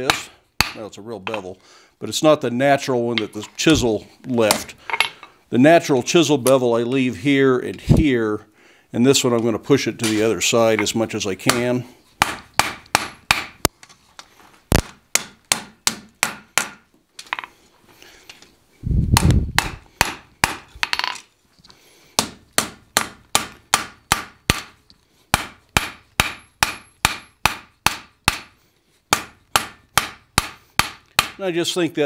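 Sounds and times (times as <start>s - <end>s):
hammer striking steel on anvil: 25.4s - 28.5s.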